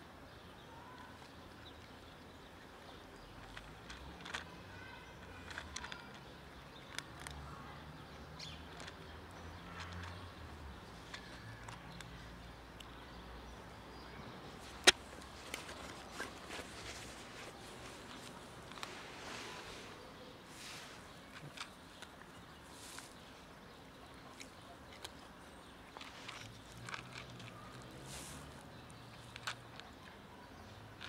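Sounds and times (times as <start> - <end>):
cat crunching dry kibble: 3.4 - 7.4, 21.1 - 23.1, 24.3 - 29.9.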